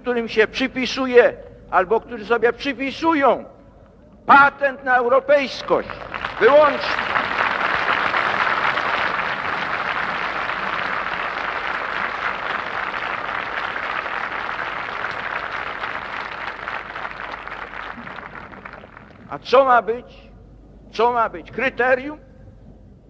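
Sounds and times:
crowd applauding: 0:05.7 - 0:19.3.

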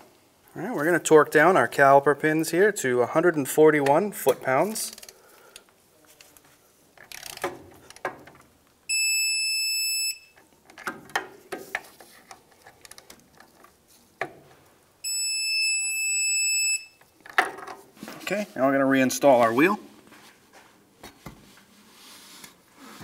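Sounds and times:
high-pitched beep: 0:08.9 - 0:10.4, 0:15.0 - 0:17.0.

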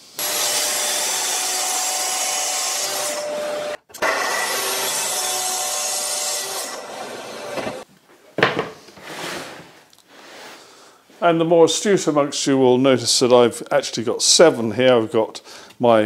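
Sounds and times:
track saw cutting board: 0:00.1 - 0:07.8.

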